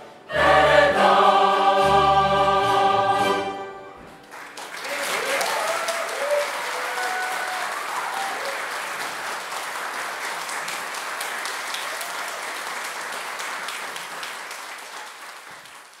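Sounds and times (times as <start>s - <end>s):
audience applauding: 4.2s - 16.0s.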